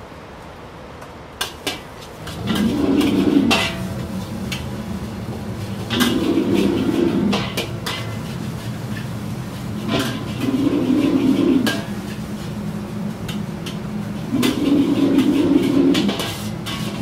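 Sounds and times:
wok burner roaring: 0.0 - 17.0
metal ladle clanking against wok: 1.4 - 4.7, 5.8 - 9.1, 9.8 - 12.2, 13.2 - 17.0.

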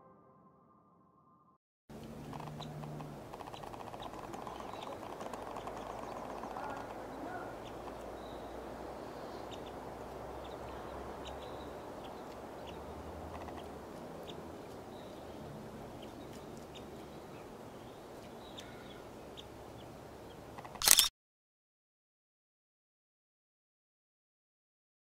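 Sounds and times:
steady background hiss: 1.9 - 20.6
birds chirping: 1.9 - 20.9.

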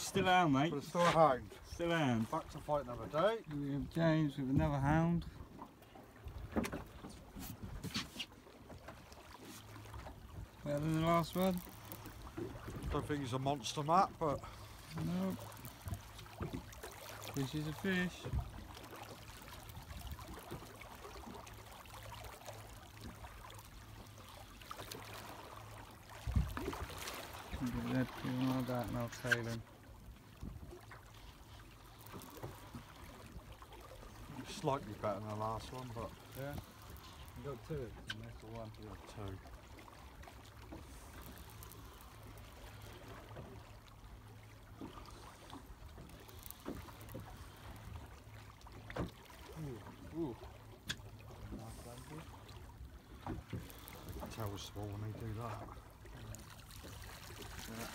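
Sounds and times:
water lapping against boat: 0.0 - 57.9.

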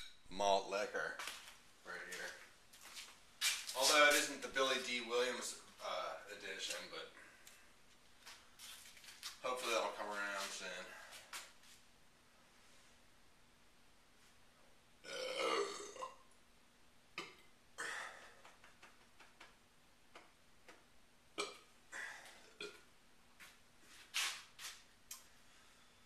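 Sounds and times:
man belching: 15.0 - 16.3, 17.2 - 18.4, 21.4 - 22.9
short sharp noises: 24.1 - 24.8.

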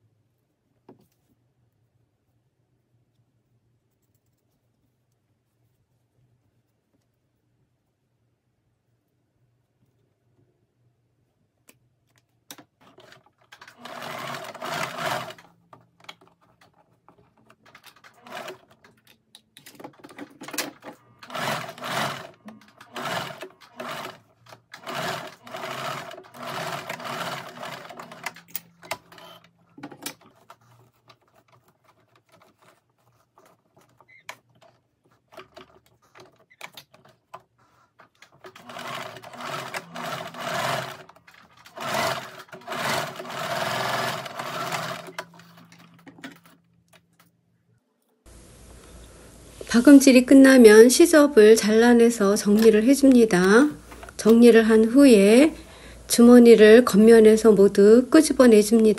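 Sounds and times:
electric sewing machine stitching: 12.9 - 15.5, 17.8 - 18.7, 20.5 - 29.5, 38.4 - 45.9.

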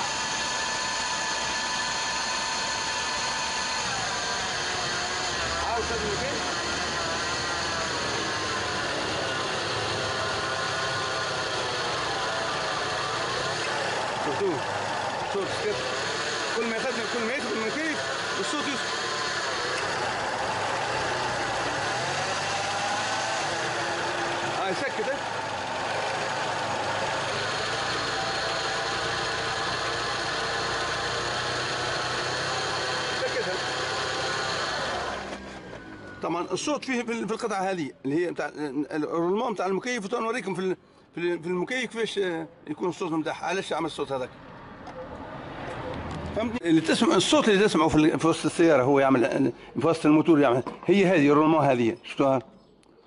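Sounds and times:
pulley bearing grinding: 0.0 - 36.0
car engine idling: 0.0 - 36.2
faint belt drive whine: 0.0 - 36.8.

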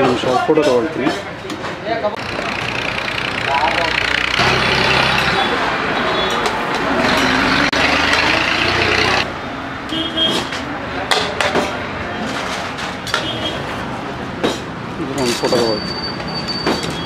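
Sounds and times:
voices: 0.0 - 9.3
traffic: 0.0 - 17.0.

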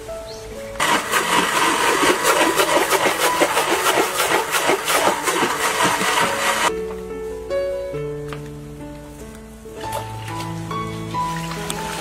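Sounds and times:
electric blender whirring: 0.8 - 6.7.

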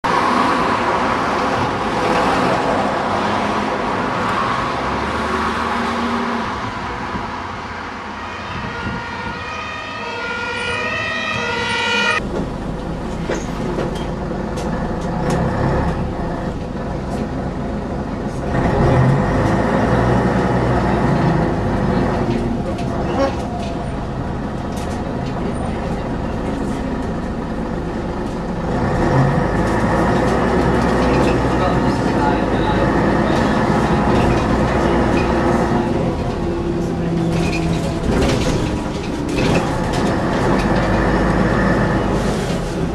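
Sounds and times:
bus engine whining: 0.0 - 42.9
bus body rattling: 12.2 - 42.9.

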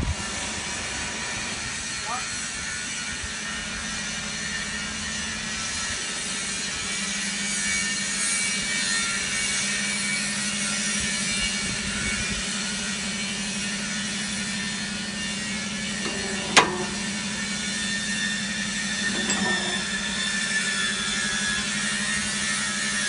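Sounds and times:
hydraulic power unit humming: 10.2 - 23.0.

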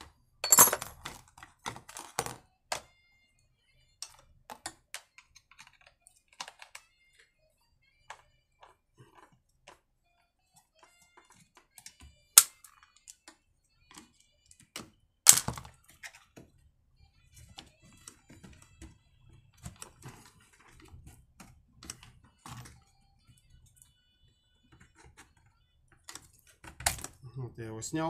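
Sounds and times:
screwdriver clicks and plastic rattles: 4.0 - 6.8, 11.2 - 16.4.

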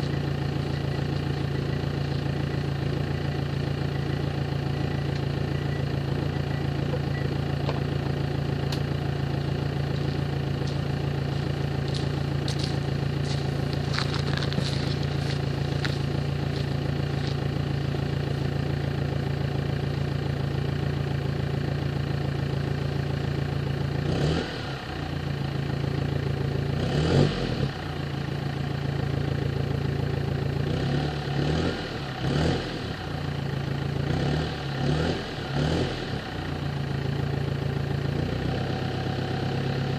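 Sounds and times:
diesel engine idling: 0.0 - 39.9
engine revving: 23.9 - 25.0, 26.6 - 28.0, 30.6 - 33.2, 33.9 - 36.7.

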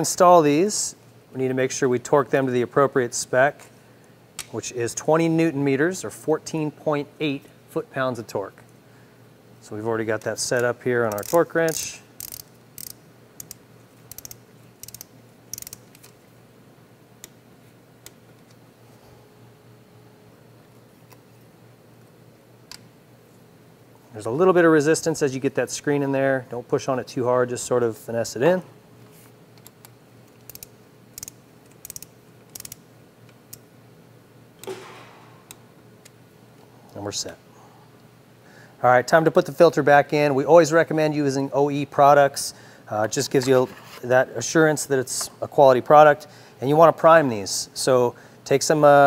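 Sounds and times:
torque wrench ratchet clicking: 11.1 - 16.1, 30.4 - 32.8.

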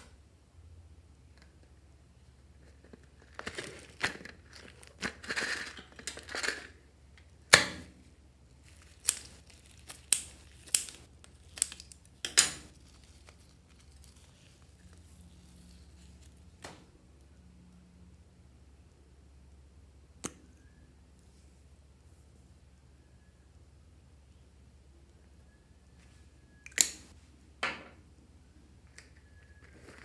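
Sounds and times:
crinkling and tearing: 2.8 - 6.7, 8.5 - 16.6.

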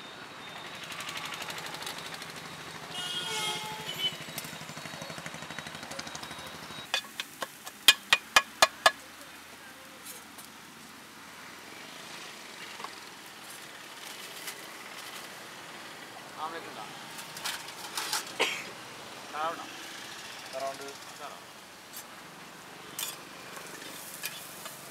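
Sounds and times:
utensil clanking on metal cookware: 6.9 - 9.0.

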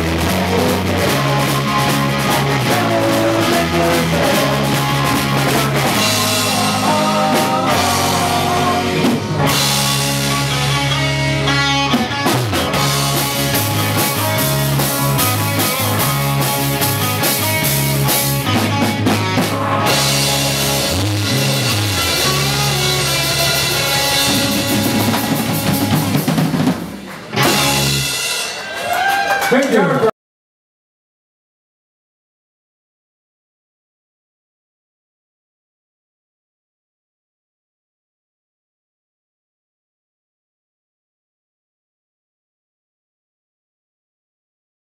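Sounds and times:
electric guitars: 0.0 - 29.5
drum kit: 0.0 - 29.8.

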